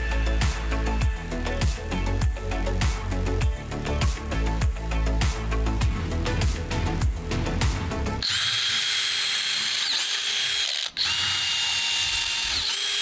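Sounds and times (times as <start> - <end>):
background music: 0.0 - 8.3
power tool motor whining: 8.2 - 13.0.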